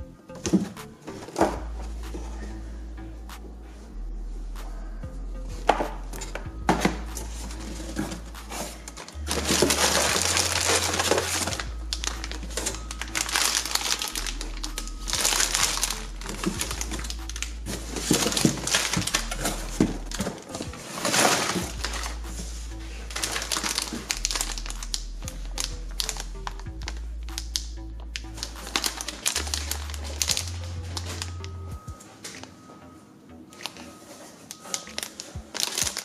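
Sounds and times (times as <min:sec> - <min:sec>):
background music: 0:00.0 - 0:36.0
plastic packets crinkling: 0:06.8 - 0:32.5, 0:33.6 - 0:36.0.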